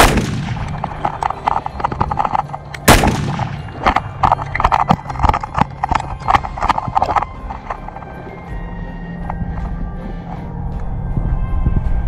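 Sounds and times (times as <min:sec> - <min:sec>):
loud echoing gunshot: 0:00.0 - 0:00.8, 0:02.9 - 0:03.8.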